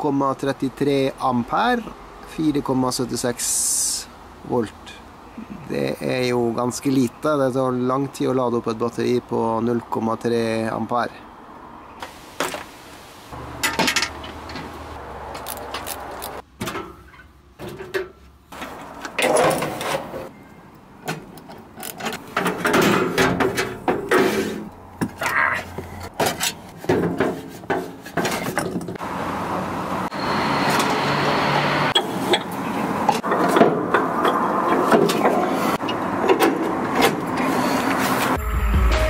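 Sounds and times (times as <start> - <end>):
hand tools and metal fittings clinking: 13.6 - 20.2, 21.0 - 24.2.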